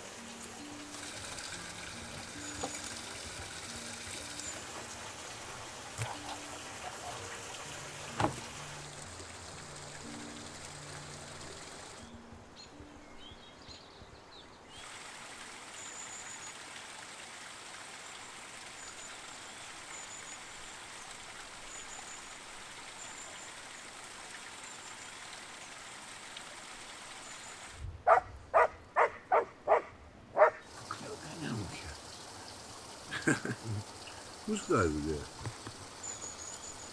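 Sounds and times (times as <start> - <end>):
mountain stream rushing: 0.0 - 12.2, 14.7 - 27.8, 30.4 - 36.9
small birds chirping faintly: 0.0 - 36.9
dog barking: 28.1 - 30.7.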